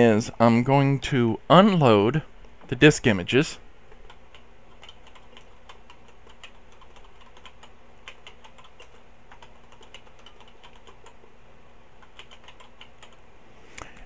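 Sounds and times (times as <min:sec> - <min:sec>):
computer keyboard key clicks: 0:04.0 - 0:11.2, 0:12.0 - 0:13.2.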